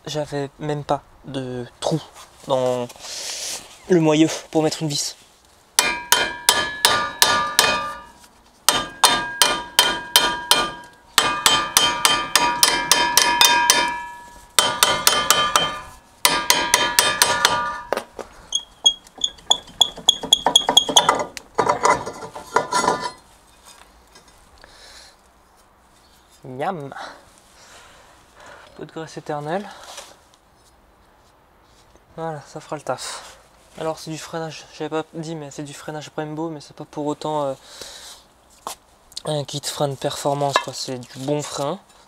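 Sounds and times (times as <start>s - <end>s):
hammer beating on metal disc: 5.8s - 18.0s, 19.5s - 21.3s.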